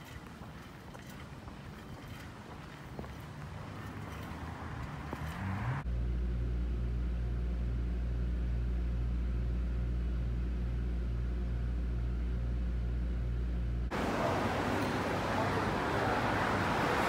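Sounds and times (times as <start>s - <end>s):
low pulsing mechanical hum: 5.8s - 13.9s.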